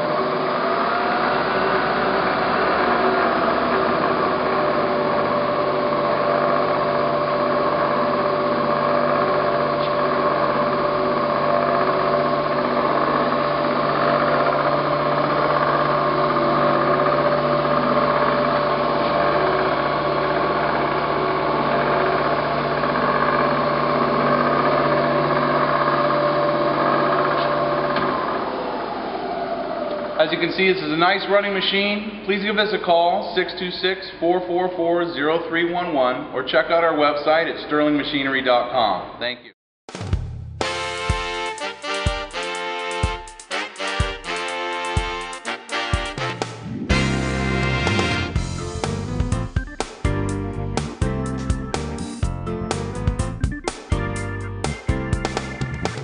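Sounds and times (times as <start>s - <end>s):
milling machine humming and whining: 0.0s - 30.6s.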